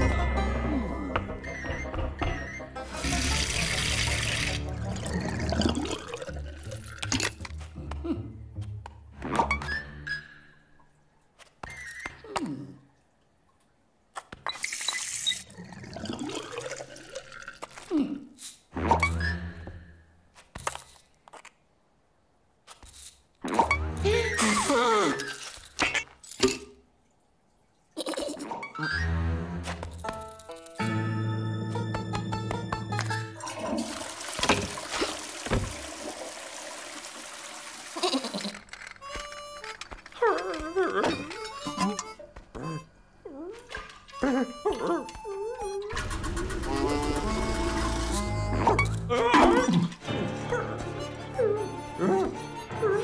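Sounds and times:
music: 0.0 - 10.6, 23.6 - 24.5, 28.8 - 33.5, 39.0 - 40.2, 41.1 - 42.8, 44.1 - 53.0
toilet flushing: 2.9 - 5.0, 33.4 - 38.2
tap water gushing: 2.9 - 5.1, 33.0 - 38.6.

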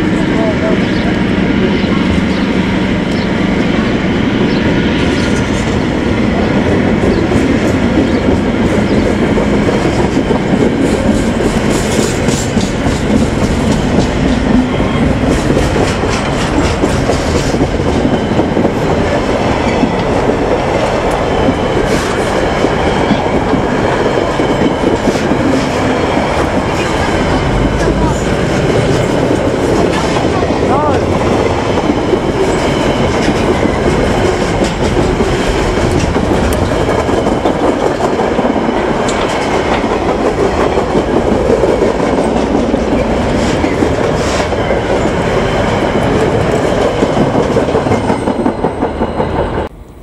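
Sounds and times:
train wheels rumbling on rail: 0.0 - 50.0
wheels clicking over rail joints: 28.6 - 49.4.

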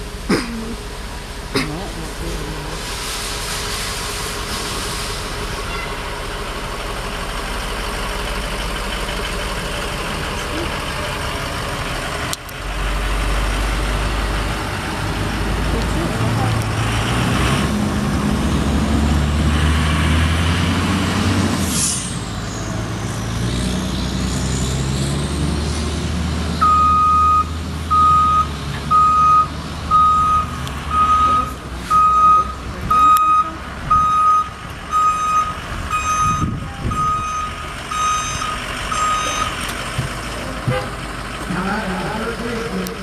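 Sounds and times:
ambulance engine running: 0.0 - 19.6, 26.0 - 43.0
backup alarm beeping: 26.6 - 39.6.

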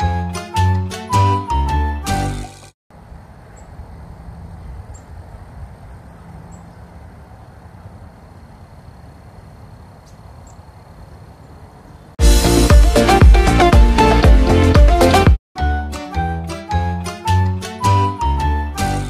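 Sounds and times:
wind buffeting microphone: 3.0 - 9.4
loud music: 12.2 - 19.0.

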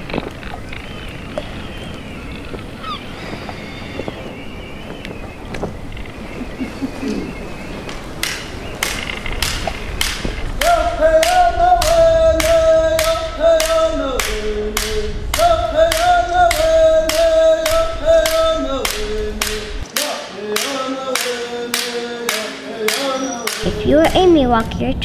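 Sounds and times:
voices singing unaccompanied: 1.5 - 24.1
sharp hand claps: 8.2 - 17.2, 18.3 - 23.6.

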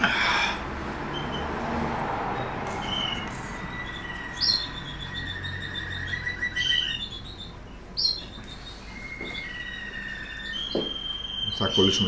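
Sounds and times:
canaries chirping and singing: 0.0 - 12.0.

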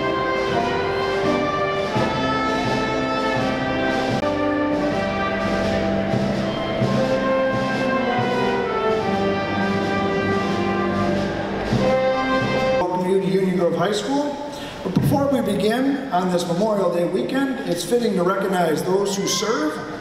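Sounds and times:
slow brass and orchestral music: 0.0 - 14.7.

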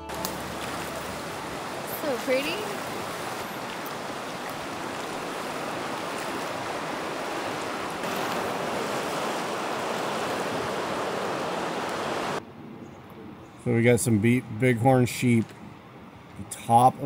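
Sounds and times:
river rushing: 0.0 - 12.4.

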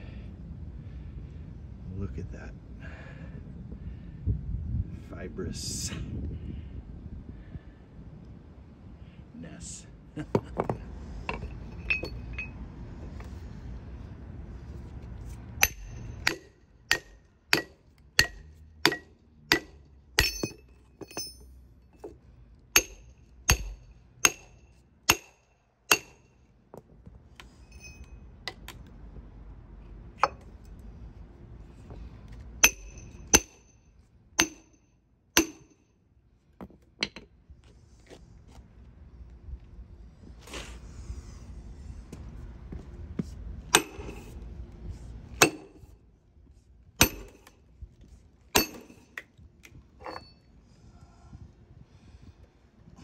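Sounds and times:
hammer striking steel wedge: 15.6 - 21.5, 22.8 - 26.3, 32.6 - 33.7, 34.4 - 34.8, 35.4 - 35.8, 43.7 - 44.3, 45.4 - 45.9, 47.0 - 47.5, 48.6 - 49.3.

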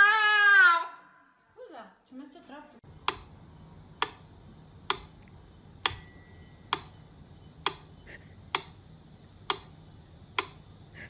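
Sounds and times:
sharp clock-like ticks: 3.0 - 3.3, 4.9 - 5.1, 5.8 - 7.9, 8.5 - 8.8, 9.4 - 10.7
bell-like ding: 5.9 - 7.7.

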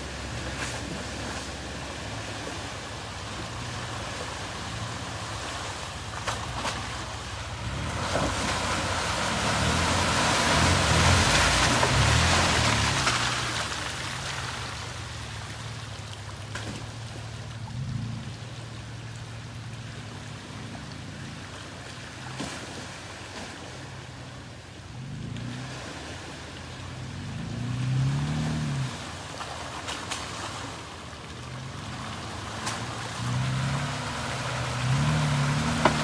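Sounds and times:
water sloshing around tyres: 0.0 - 36.0
car engine revving: 7.5 - 13.4, 31.8 - 36.0.

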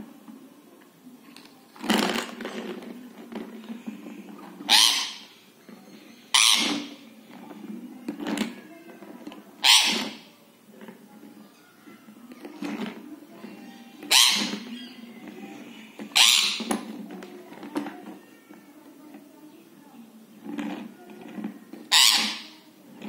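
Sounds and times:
parakeet screeching: 4.7 - 5.3, 6.3 - 6.9, 9.6 - 10.2, 14.1 - 14.6, 16.2 - 16.7, 21.9 - 22.6.

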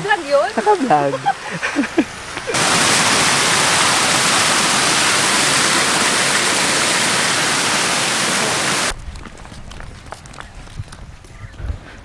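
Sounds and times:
water pouring over weir: 2.6 - 8.9.

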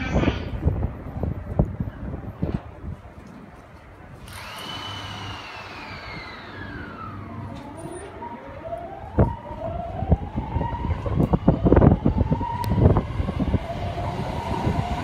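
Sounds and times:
electric train motors whining: 4.2 - 15.0.

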